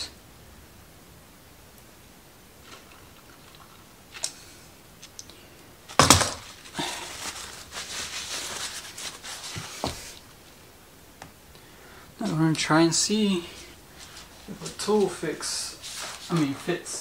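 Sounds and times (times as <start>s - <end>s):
loud clatter of object put down: 6.0s - 6.5s
rustling and light knocks: 6.0s - 10.2s.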